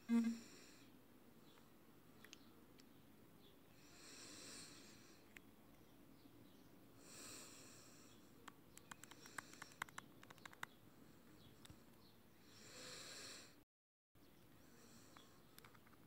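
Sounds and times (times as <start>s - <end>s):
faint breathing: 3.7s - 5.3s, 7.0s - 10.0s, 10.9s - 13.6s, 14.5s - 15.8s
finger tapping touchscreen: 8.5s - 10.7s.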